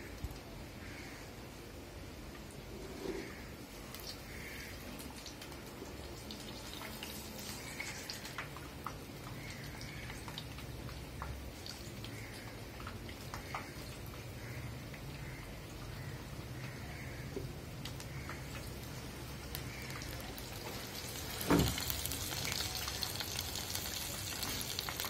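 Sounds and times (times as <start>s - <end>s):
oil sizzling: 2.5s - 16.8s, 17.5s - 25.0s
small pops and crackles: 5.0s - 14.3s, 17.8s - 25.0s.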